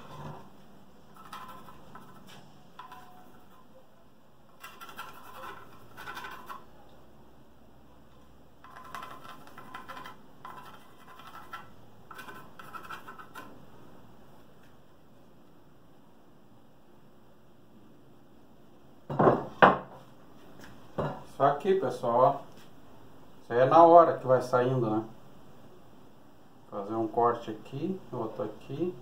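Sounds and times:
pencil scratching on wood: 0:01.2 - 0:03.5, 0:04.6 - 0:06.7, 0:08.6 - 0:13.5.

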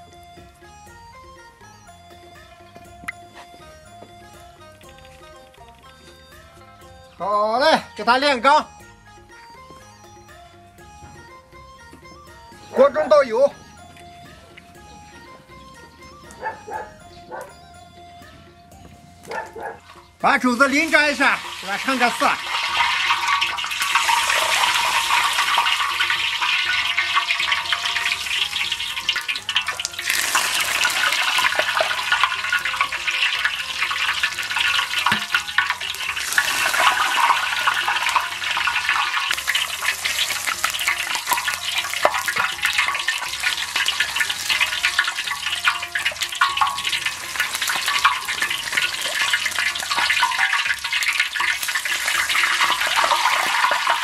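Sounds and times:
hot oil sizzling on meat: 0:20.6 - 0:54.0
oil streaming into wok: 0:20.8 - 0:54.0.

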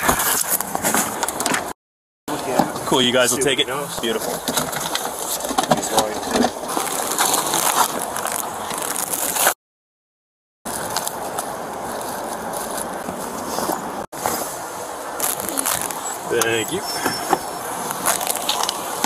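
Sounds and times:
gloved hands rustling through bags: 0:04.1 - 0:09.6, 0:10.7 - 0:19.0.

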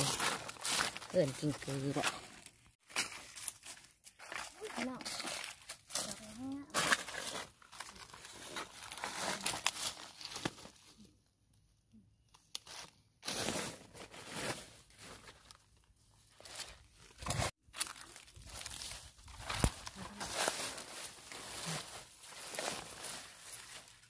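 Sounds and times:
dry leaves crackling and rustling: 0:00.0 - 0:10.9, 0:16.4 - 0:24.0.

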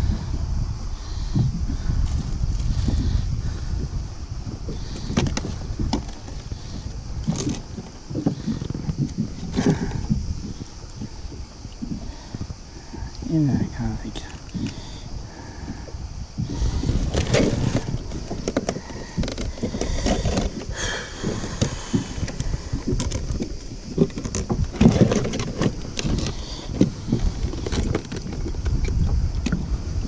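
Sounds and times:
fish knocking on plastic kayak: 0:04.6 - 0:13.1, 0:16.4 - 0:29.6.

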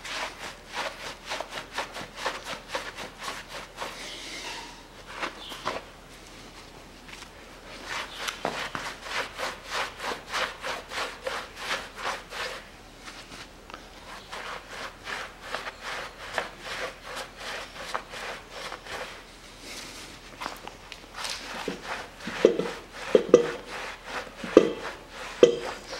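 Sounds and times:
rag scrubbing metal: 0:00.0 - 0:05.8, 0:07.7 - 0:12.7, 0:14.0 - 0:19.3, 0:21.2 - 0:25.9.

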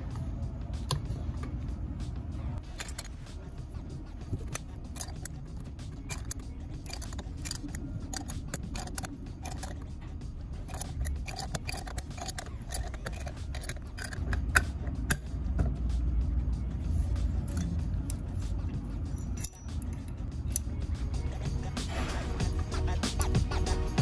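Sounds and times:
low steady rumble: 0:00.0 - 0:24.0
wrench clicking on metal nut: 0:02.6 - 0:03.2, 0:04.4 - 0:09.9, 0:10.6 - 0:15.3, 0:19.2 - 0:20.7.

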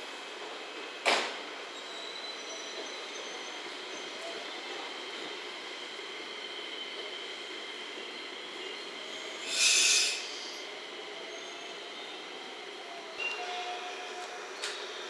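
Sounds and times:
electric train pulling away: 0:05.1 - 0:15.0
compressed air hiss: 0:09.3 - 0:10.6.

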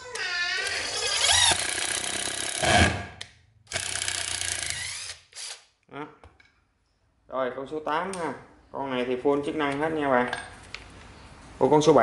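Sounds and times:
cordless screwdriver motor: 0:03.8 - 0:05.6.

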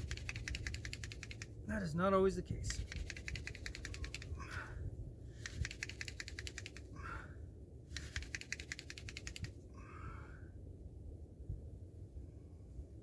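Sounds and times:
hand-drill spindle fast clicking: 0:00.0 - 0:01.5, 0:02.8 - 0:04.3, 0:05.4 - 0:06.8, 0:08.0 - 0:09.5
hands rubbing on spindle: 0:07.9 - 0:09.5.

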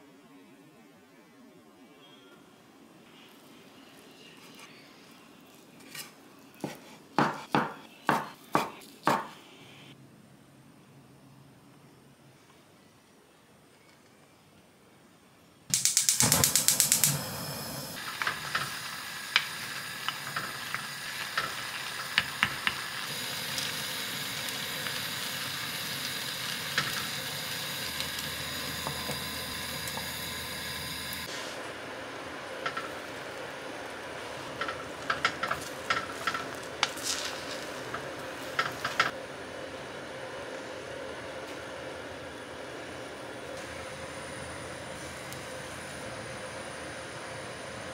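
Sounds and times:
gas burner igniter clicking: 0:15.7 - 0:31.3
rice boiling with pops: 0:15.7 - 0:39.2
gas flame hissing: 0:15.7 - 0:47.9.

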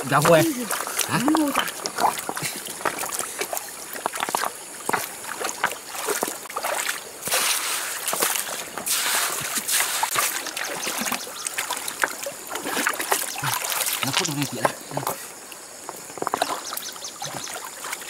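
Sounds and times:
stream water splashing: 0:00.0 - 0:18.0
stones knocking: 0:00.1 - 0:00.6.

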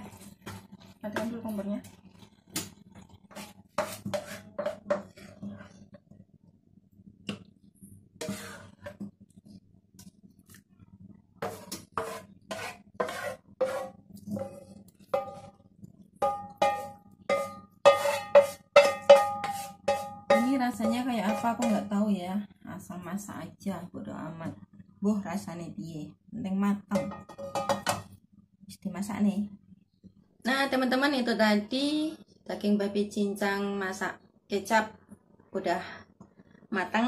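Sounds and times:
spatula knocking on frying pan: 0:15.1 - 0:15.5, 0:16.2 - 0:21.9, 0:27.0 - 0:28.1.

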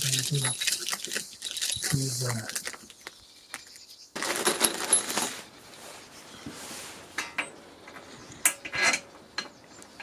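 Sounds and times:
metal rails and screws clinking: 0:00.0 - 0:02.8, 0:04.2 - 0:05.4.

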